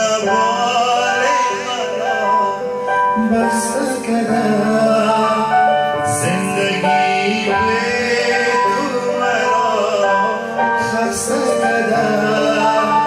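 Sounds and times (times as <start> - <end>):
instrumental accompaniment: 0.0 - 13.0
man singing slow song: 0.0 - 13.0.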